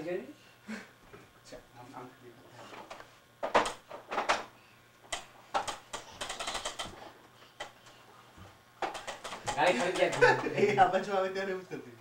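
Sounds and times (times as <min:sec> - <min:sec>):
plastic baby walker clacking: 0:05.6 - 0:07.0, 0:08.8 - 0:10.3.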